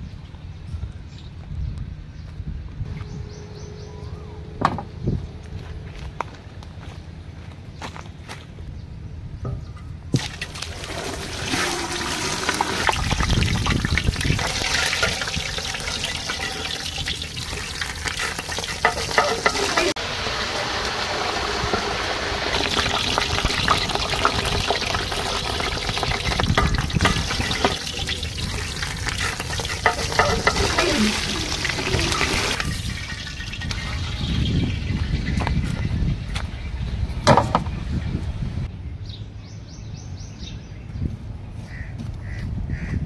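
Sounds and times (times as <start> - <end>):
water sloshing in steel basin: 10.2 - 20.0, 21.3 - 34.3
metal ladle stirring in pot: 10.8 - 20.0, 22.5 - 34.1.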